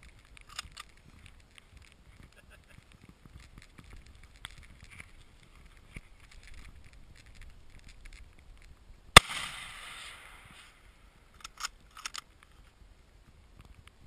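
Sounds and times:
rifle shot: 9.1 - 11.7.

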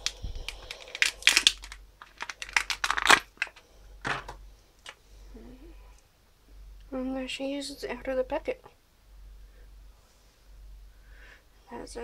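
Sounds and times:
plastic packet crinkling: 0.0 - 3.6.

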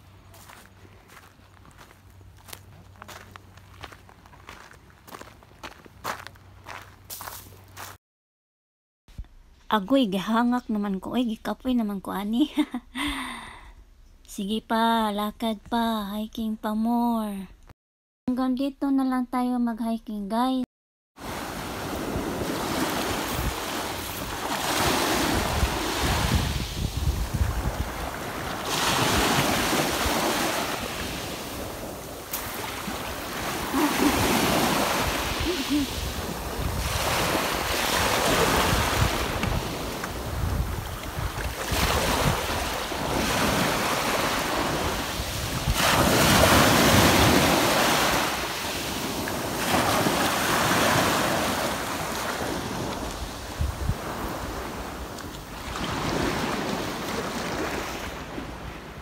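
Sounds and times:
waves washing onto shore: 21.2 - 59.0
wind buffeting microphone: 25.2 - 30.3, 33.5 - 43.6, 53.1 - 54.9.

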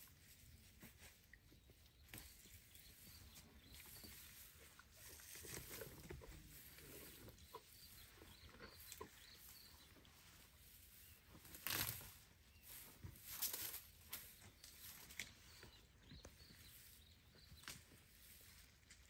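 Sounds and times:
dry grass and twigs rustling: 0.0 - 19.0.

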